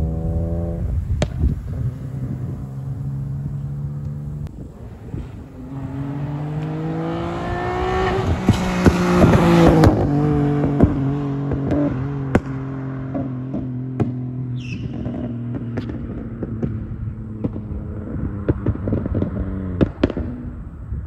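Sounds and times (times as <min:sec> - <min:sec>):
car engine accelerating past: 0:00.0 - 0:20.6
sharp exhaust pops: 0:01.0 - 0:05.6, 0:07.4 - 0:20.6.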